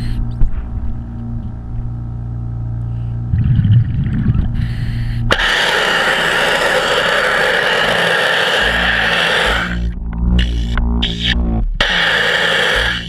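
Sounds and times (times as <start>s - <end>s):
low steady hum: 0.0s - 13.0s
underwater pressure-washer jet hiss: 5.3s - 9.8s, 11.8s - 13.0s.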